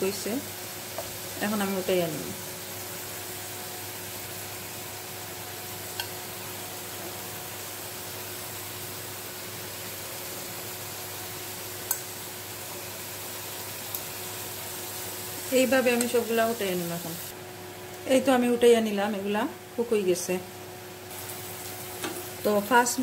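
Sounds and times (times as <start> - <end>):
vegetables sizzling in oil: 0.0 - 23.0
metal tongs clicking on pan: 5.9 - 6.2, 11.8 - 12.1, 15.9 - 16.2.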